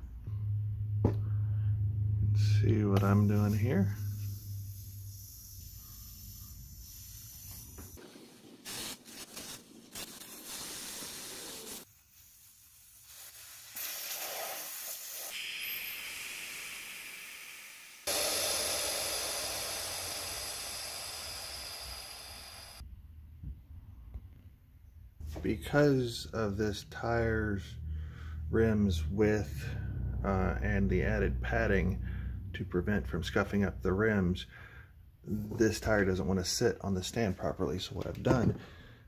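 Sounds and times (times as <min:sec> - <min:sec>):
air hissing out of tire: 0:03.2 - 0:22.8.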